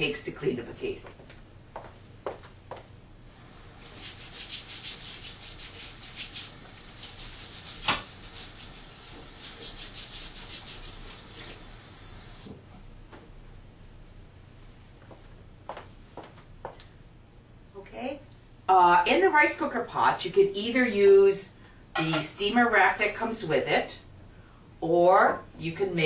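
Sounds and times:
brush scrubbing potato: 3.7 - 12.4
tap water running into sink: 4.0 - 12.6.

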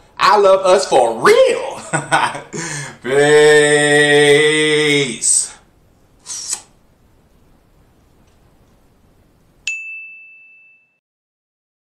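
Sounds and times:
bright ding: 9.6 - 11.0.

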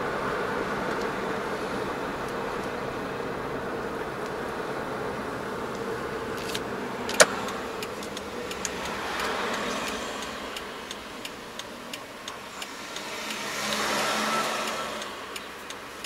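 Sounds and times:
car engine and road noise: 0.0 - 16.0
turn signal ticking: 0.0 - 16.0
sharp click: 6.4 - 9.6.

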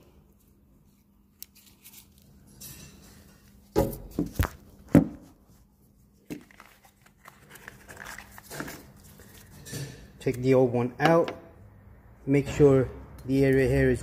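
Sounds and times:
handling knocks and thumps: 3.7 - 5.4.

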